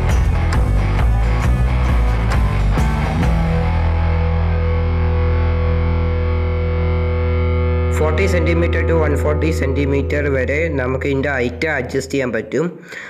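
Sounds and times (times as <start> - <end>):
rock drums: 0.0 - 7.9
distorted electric guitar: 0.0 - 12.4.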